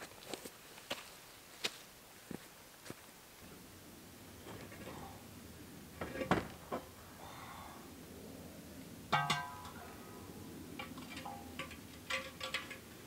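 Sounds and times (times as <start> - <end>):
ringing metallic clank: 9.1 - 9.8
hard objects knocking and clinking: 9.2 - 9.8, 10.8 - 12.9.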